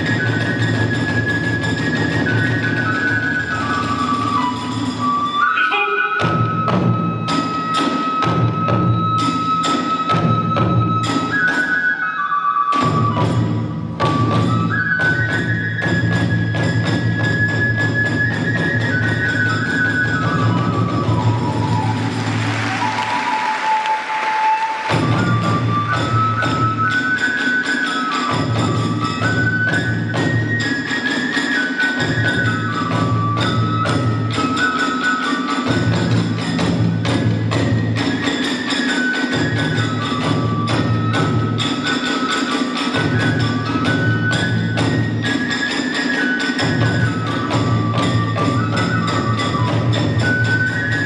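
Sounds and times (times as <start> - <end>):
bamboo flute melody: 0.0 - 51.0
fast drum beats: 12.8 - 51.0.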